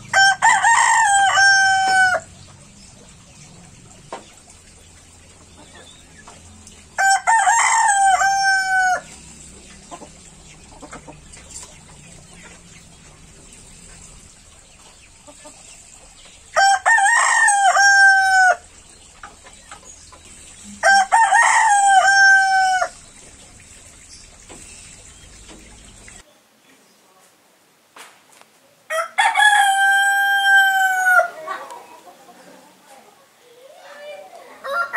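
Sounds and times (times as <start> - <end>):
rooster crowing: 0.1 - 2.3, 6.9 - 9.2, 16.6 - 18.7, 20.7 - 23.0, 28.9 - 31.5, 34.6 - 34.9.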